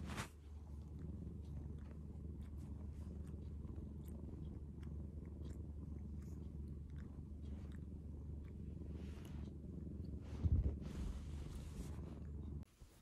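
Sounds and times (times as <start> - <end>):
cat purring: 0.0 - 13.0
soft licking clicks: 0.4 - 10.2.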